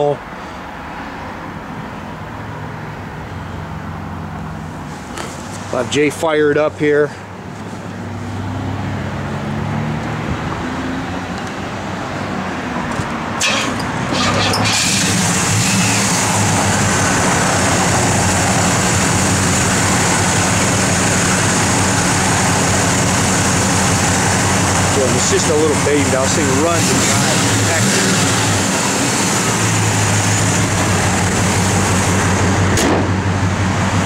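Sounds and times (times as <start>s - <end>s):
car engine idling: 13.4s - 34.0s.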